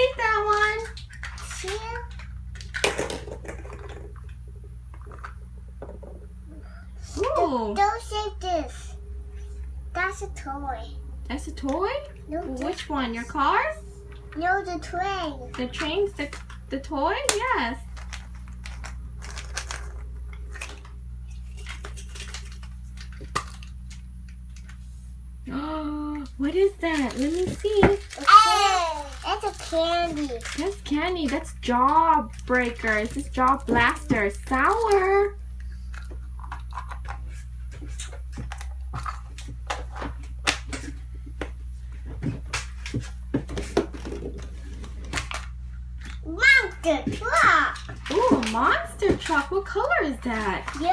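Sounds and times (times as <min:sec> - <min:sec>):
plastic eggs clacking together: 0:00.0 - 0:06.2, 0:17.3 - 0:24.7, 0:26.9 - 0:35.3, 0:35.9 - 0:37.3.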